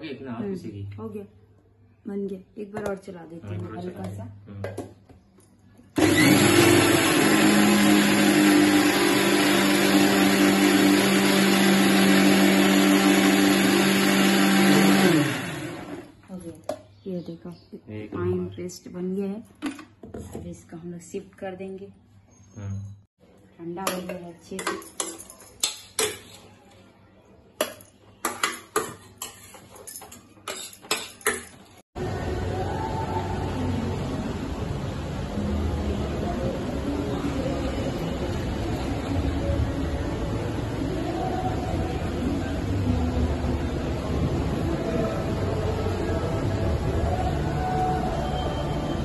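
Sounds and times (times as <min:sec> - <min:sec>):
mixer grinder humming and whirring: 0:06.0 - 0:16.1.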